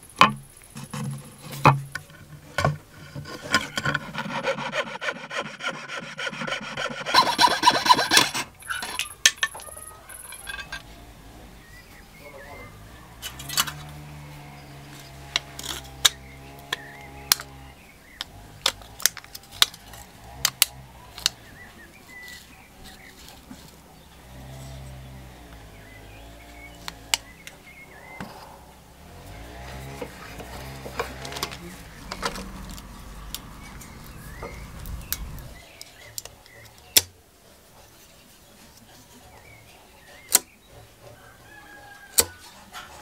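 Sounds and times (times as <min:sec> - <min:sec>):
low hum: 0:24.1 - 0:35.6.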